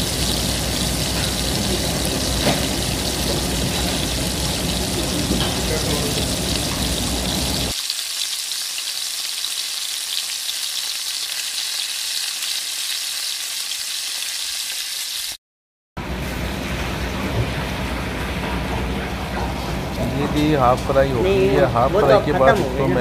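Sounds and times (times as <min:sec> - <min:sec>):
fish deep-frying in hot oil: 0:00.0 - 0:15.4.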